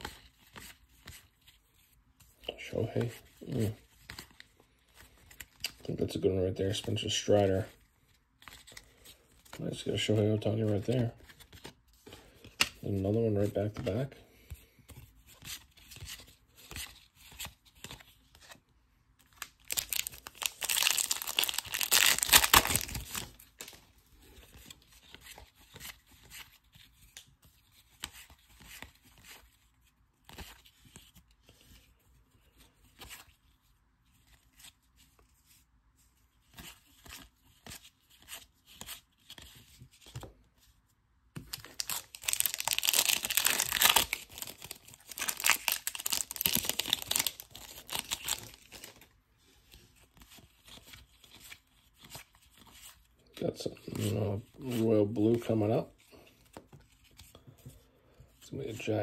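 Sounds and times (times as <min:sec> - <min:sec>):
cards sliding and flipping: 0:08.4 - 0:12.8
foil wrapper crinkling: 0:19.4 - 0:23.8, 0:41.5 - 0:49.0
wrapper tearing open: 0:19.4 - 0:23.8, 0:41.5 - 0:49.0.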